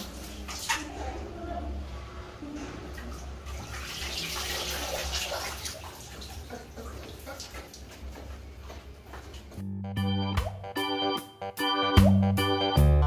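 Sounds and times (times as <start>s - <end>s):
water splashing and dripping: 0.0s - 1.0s, 2.9s - 8.4s.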